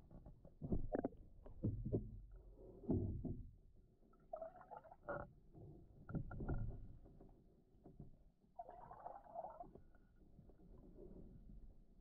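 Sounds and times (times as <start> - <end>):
bubbling gurgles: 8.6 - 9.7.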